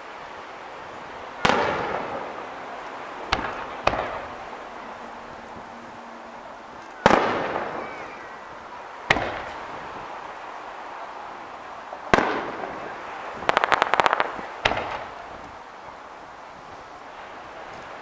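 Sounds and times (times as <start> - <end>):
small firework pops: 1.4 - 2.2, 3.3 - 4.3, 9.1 - 9.6, 12.1 - 15.6
firework shells booming: 1.4 - 2.4, 3.2 - 4.6, 7.0 - 8.3, 9.0 - 9.7, 12.1 - 15.6.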